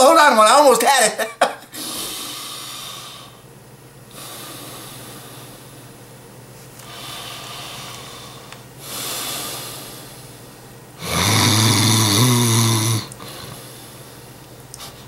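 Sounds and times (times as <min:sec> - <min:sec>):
man breathing: 0:01.7 - 0:03.5, 0:04.1 - 0:06.0, 0:06.8 - 0:11.6, 0:12.4 - 0:14.4
man mock snoring: 0:11.0 - 0:13.5.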